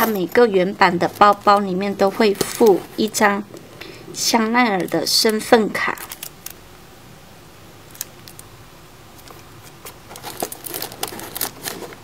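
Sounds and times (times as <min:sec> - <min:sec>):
handbag clicks and rustles: 0:09.2 - 0:12.0.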